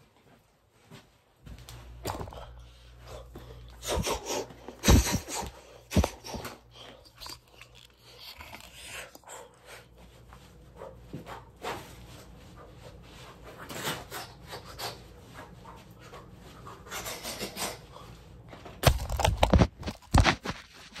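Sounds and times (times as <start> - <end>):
loud close bumps and rubbing: 18.8 - 21.0.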